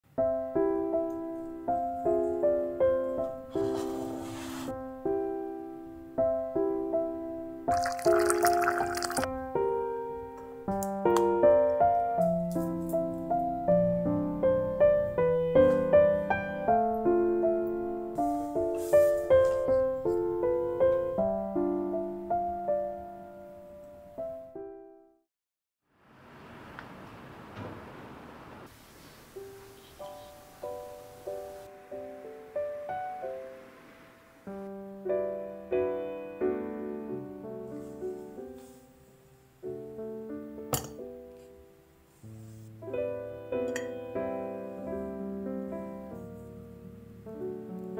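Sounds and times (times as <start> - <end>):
gentle piano music: 0.1 - 25.2, 29.3 - 47.9.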